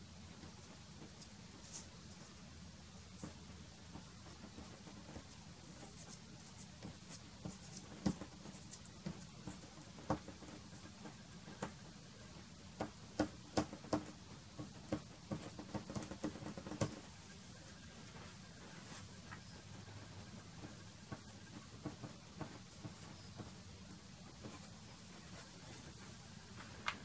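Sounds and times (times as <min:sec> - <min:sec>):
pastel stick tapping and scraping paper: 0:03.2 - 0:11.9, 0:12.6 - 0:17.1, 0:20.3 - 0:25.9.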